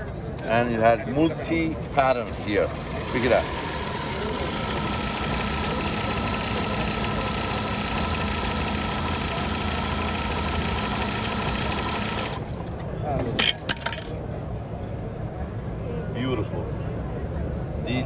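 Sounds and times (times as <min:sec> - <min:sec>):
industrial sewing machine stitching: 0:01.6 - 0:12.6.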